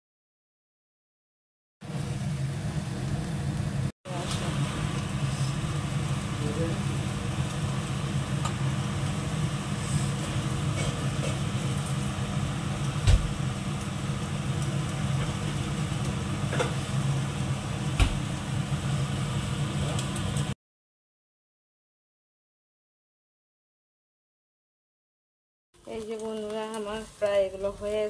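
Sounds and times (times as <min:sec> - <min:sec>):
gas burner low rumble: 0:01.8 - 0:20.6, 0:25.8 - 0:28.0.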